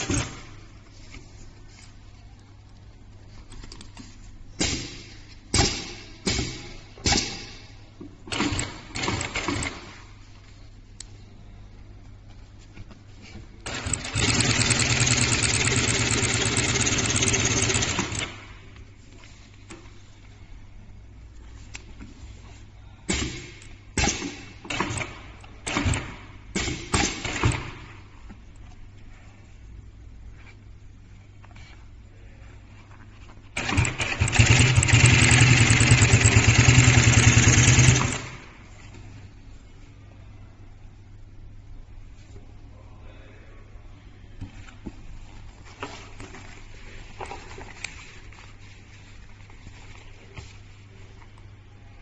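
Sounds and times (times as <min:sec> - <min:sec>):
faint low hum: 0:00.0 - 0:09.0, 0:27.6 - 0:33.6, 0:38.1 - 0:52.0
sewing machine bursts: 0:13.6 - 0:18.5, 0:33.6 - 0:38.6.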